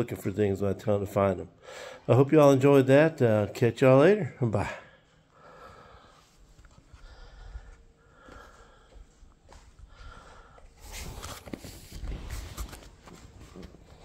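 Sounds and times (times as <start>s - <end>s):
footsteps: 6.2s - 14.0s
phone handling rubbing and rustling: 10.8s - 14.0s.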